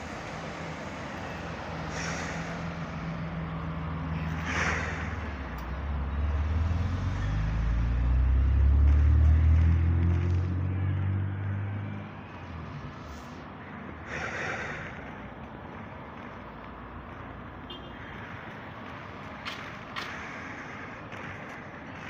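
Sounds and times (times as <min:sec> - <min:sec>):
car driving past: 0:00.7 - 0:13.4.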